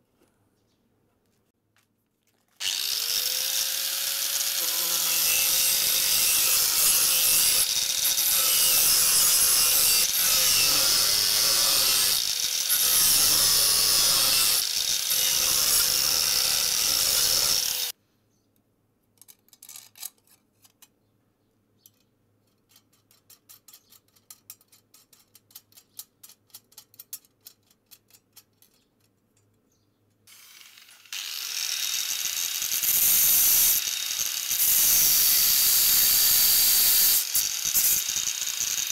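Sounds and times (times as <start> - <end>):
angle grinder cutting steel: 2.6 - 18.0, 30.3 - 38.9.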